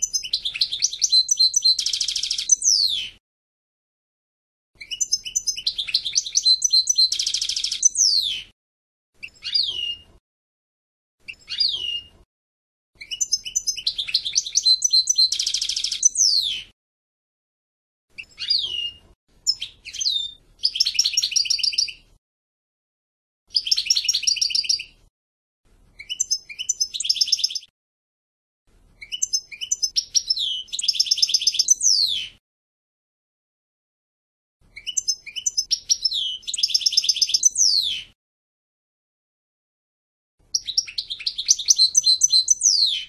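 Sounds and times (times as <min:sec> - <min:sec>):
goldfinch singing: 0:00.0 - 0:03.2, 0:04.8 - 0:08.5, 0:09.2 - 0:10.0, 0:11.3 - 0:12.1, 0:13.0 - 0:16.7, 0:18.2 - 0:22.0, 0:23.5 - 0:25.0, 0:26.0 - 0:27.7, 0:29.0 - 0:32.4, 0:34.7 - 0:38.1, 0:40.5 - 0:43.0.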